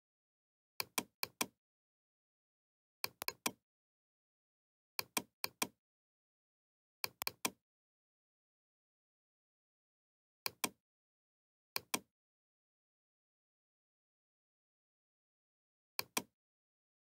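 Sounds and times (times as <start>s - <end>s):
computer mouse double-clicks: 0.8s - 1.6s, 3.0s - 3.6s, 5.0s - 5.8s, 7.0s - 7.6s, 11.8s - 12.1s, 16.0s - 16.3s.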